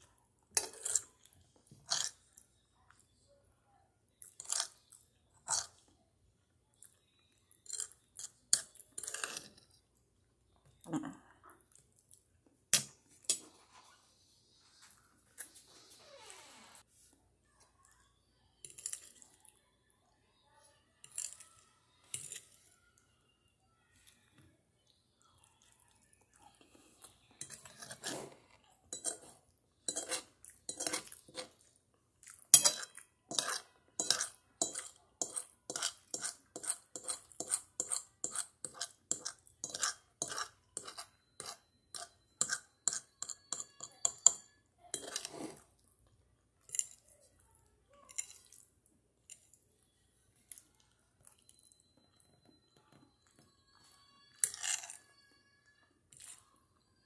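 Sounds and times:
fork scraping ceramic plate: 0.5s - 1.1s, 7.6s - 9.8s, 27.4s - 31.6s, 32.6s - 45.8s, 54.4s - 55.0s.

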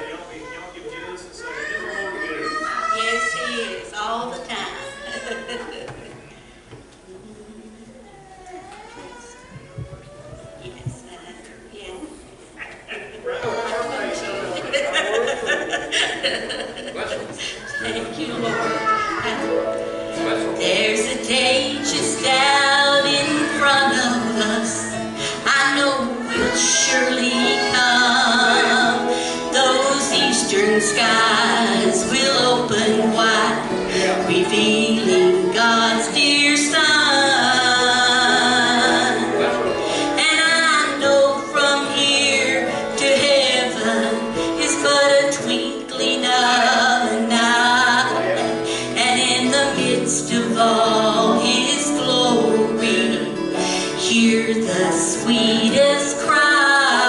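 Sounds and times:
strummed acoustic guitars: 17.0s - 57.0s
women singing in harmony: 20.6s - 57.0s.

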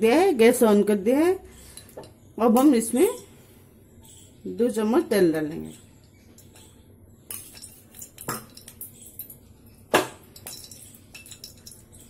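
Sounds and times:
metal spoon clinking on steel bowl: 5.0s - 12.0s.

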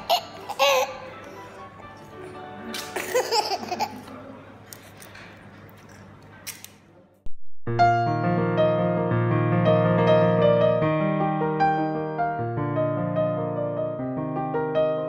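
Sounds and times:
baby laughing and squealing: 0.0s - 1.1s
piano music: 0.0s - 4.0s, 7.8s - 15.0s.

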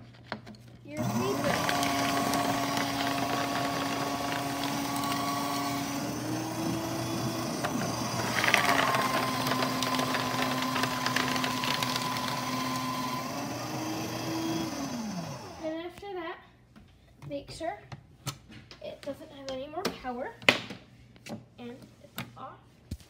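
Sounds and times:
paper shredder cutting paper: 0.9s - 15.7s.

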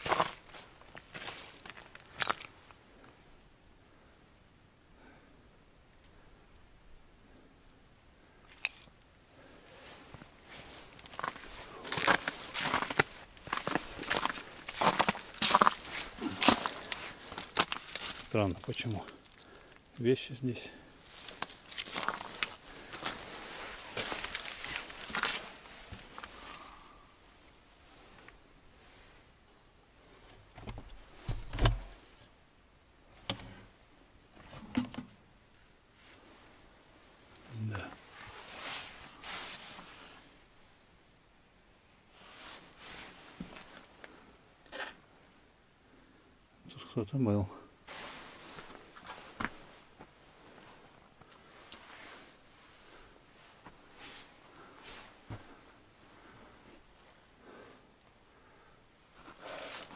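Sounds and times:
footsteps crunching through dry leaves: 10.6s - 18.7s, 21.0s - 26.1s.

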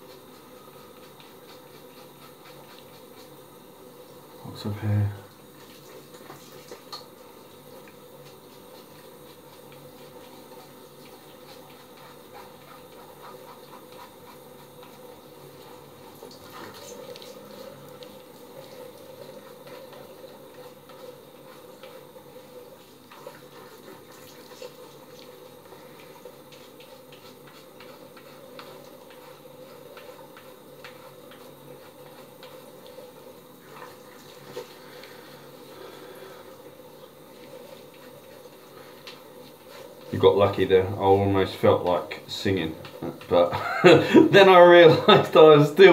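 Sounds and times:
razor scraping hair: 0.0s - 35.6s.

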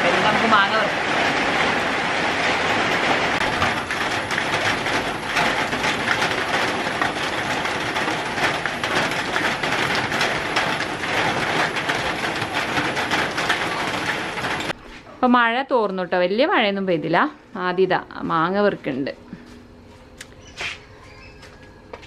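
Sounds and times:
rain patter on garden: 0.0s - 14.8s
water dripping off roof: 0.0s - 14.8s.

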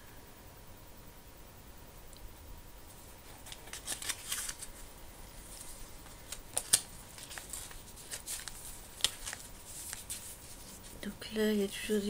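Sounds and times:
paper pages rustling: 2.9s - 11.1s
paper snap: 3.4s - 4.7s, 6.0s - 10.2s.

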